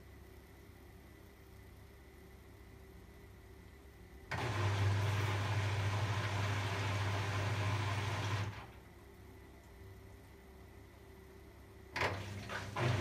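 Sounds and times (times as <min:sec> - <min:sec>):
low electrical hum: 0:00.0 - 0:13.0
water rushing in washing machine: 0:04.3 - 0:08.8, 0:12.0 - 0:13.0.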